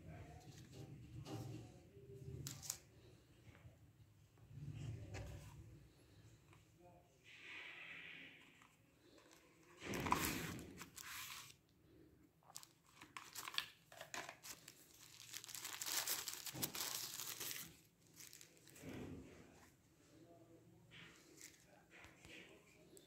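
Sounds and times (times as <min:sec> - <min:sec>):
paper packaging rustling: 0:08.6 - 0:11.6, 0:12.5 - 0:19.0
plastic pouch crinkling: 0:12.4 - 0:18.8.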